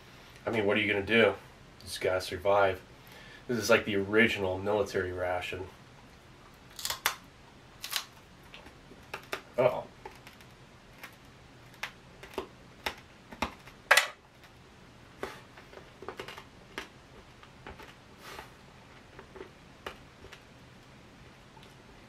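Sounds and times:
person chewing dry cracker: 6.6s - 7.2s, 7.8s - 14.6s, 15.2s - 20.9s.

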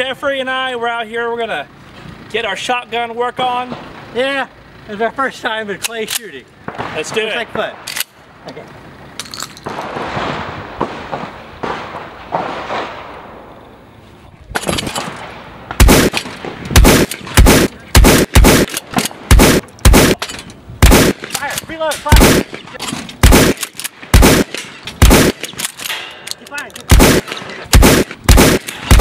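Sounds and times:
shotgun shots: 6.6s - 8.1s, 9.6s - 13.4s, 14.6s - 20.2s, 20.8s - 26.2s, 26.9s - 29.0s.

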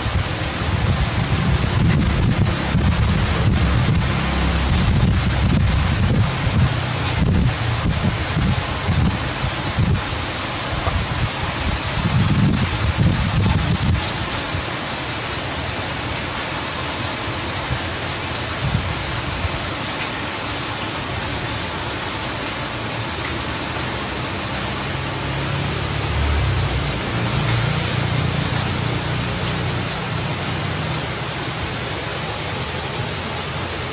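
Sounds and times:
heavy rain: 0.0s - 33.9s.

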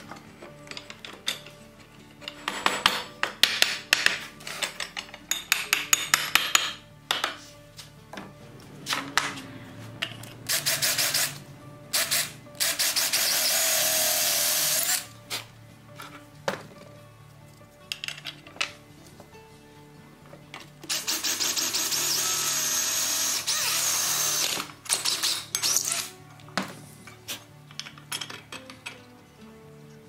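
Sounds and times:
cordless drill boring into wood: 10.5s - 11.4s, 12.0s - 15.1s, 20.9s - 26.1s.

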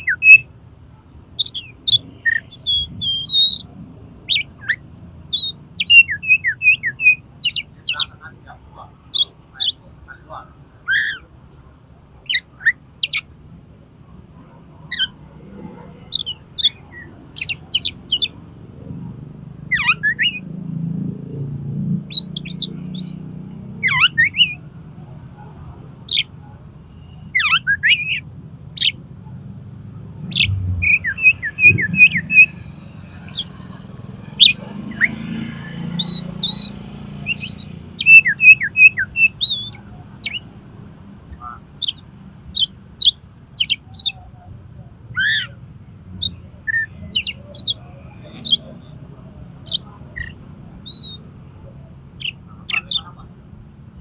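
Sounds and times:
songbird whistling song: 0.0s - 0.5s, 1.4s - 8.2s, 10.9s - 11.3s, 12.2s - 13.3s, 15.8s - 18.4s, 19.7s - 20.5s, 22.1s - 24.6s, 26.1s - 29.0s, 30.3s - 40.5s, 41.8s - 42.0s, 42.6s - 44.2s, 45.1s - 45.6s, 46.2s - 49.0s, 49.6s - 53.1s.

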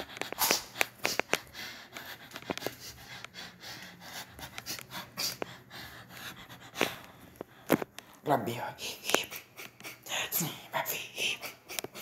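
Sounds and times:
person breathing hard: 0.0s - 8.2s, 8.8s - 12.0s.

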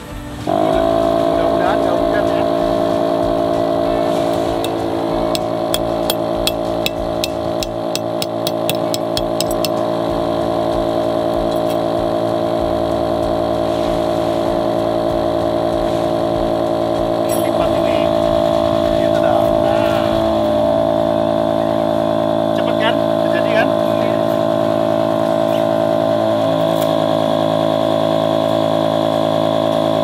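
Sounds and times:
air pump motor running: 0.0s - 30.0s
sharp taps: 4.6s - 9.8s.

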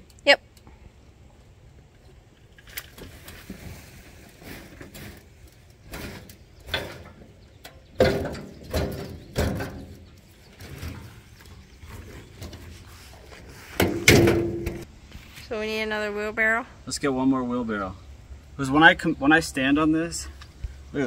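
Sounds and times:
compost sliding and tumbling: 2.5s - 15.5s
wheelbarrow scraping and knocking: 2.9s - 14.9s
heavy thuds: 13.8s - 14.8s.

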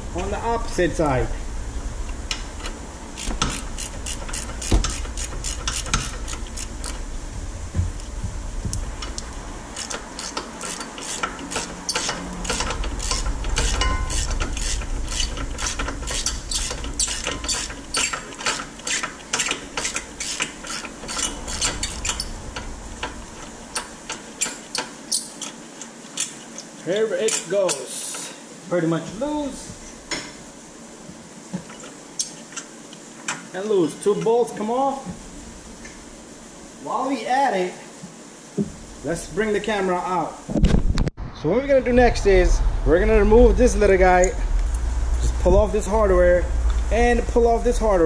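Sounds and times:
ratchet wrench clicking: 3.2s - 7.0s, 9.1s - 25.6s.

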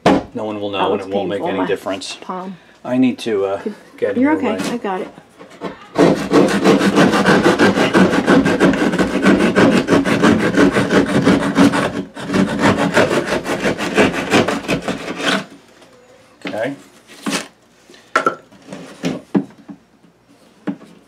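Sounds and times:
hand saw cutting drywall: 6.0s - 15.5s.

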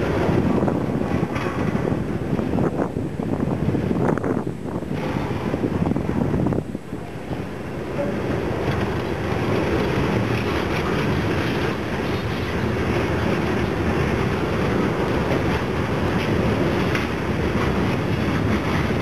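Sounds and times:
faint rail clacks: 0.0s - 2.7s, 7.0s - 19.0s
steel wheels rumbling on rail: 0.0s - 19.0s
wind on microphone: 0.0s - 19.0s.

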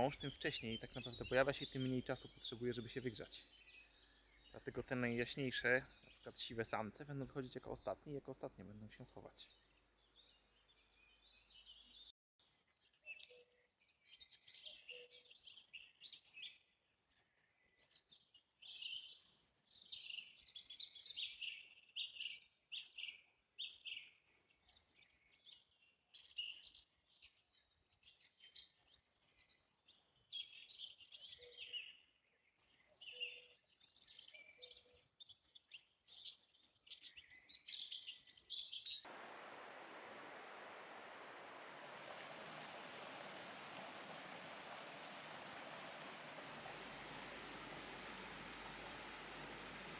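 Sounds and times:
songbirds chirping and trilling: 0.0s - 49.9s
faint low bird calls: 39.1s - 49.9s
steady hiss: 39.1s - 49.9s.

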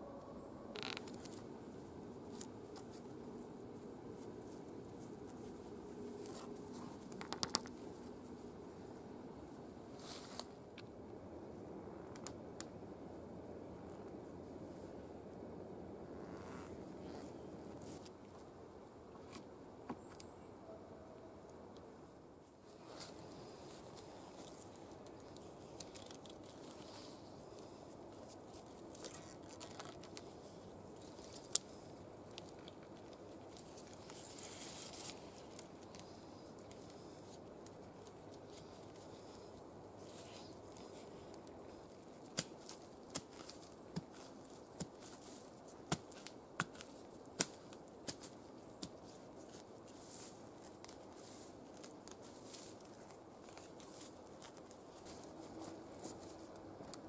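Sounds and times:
twine rubbing on bark: 0.7s - 8.5s.

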